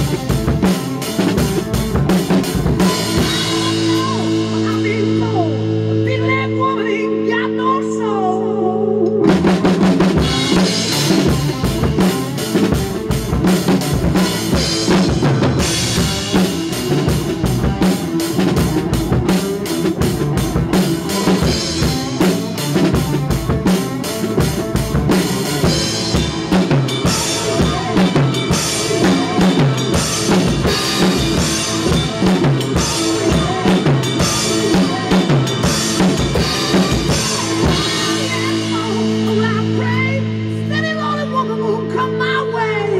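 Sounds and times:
drum kit playing rock groove: 0.0s - 7.4s, 9.1s - 42.3s.

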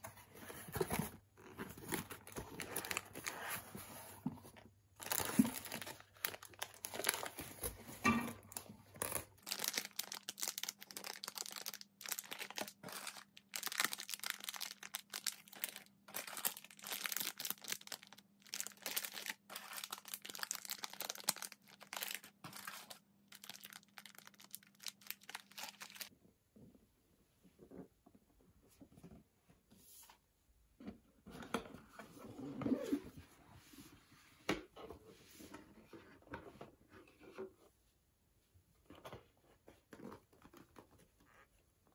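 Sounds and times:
plastic wrappers crinkling: 5.0s - 26.1s.

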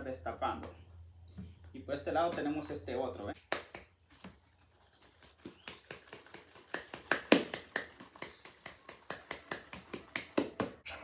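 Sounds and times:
aerosol can being shaken: 4.6s - 10.6s.

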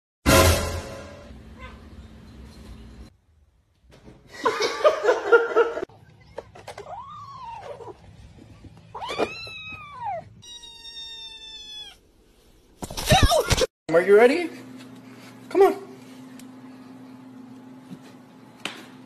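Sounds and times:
cats and kittens meowing: 6.7s - 12.1s
cat yowling harshly: 6.8s - 8.0s, 8.9s - 12.0s.

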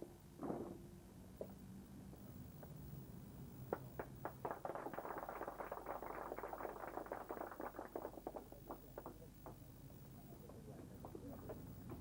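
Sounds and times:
audience applauding: 4.0s - 9.2s.

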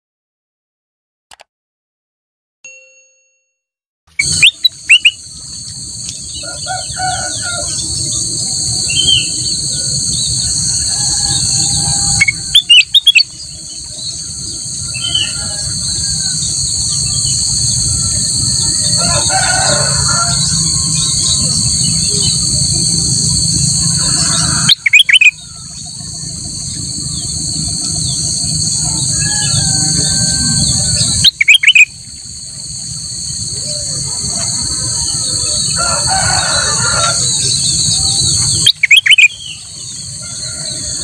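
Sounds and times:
bird chirping and singing: 4.2s - 5.2s, 6.1s - 19.0s, 19.8s - 22.6s, 24.4s - 31.9s, 37.0s - 41.0s
steady high buzz: 4.2s - 41.0s.

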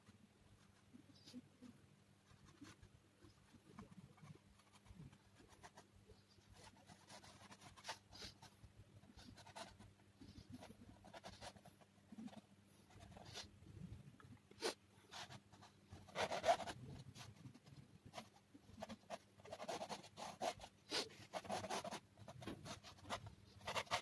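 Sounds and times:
pencil scratching on board: 14.6s - 24.0s.

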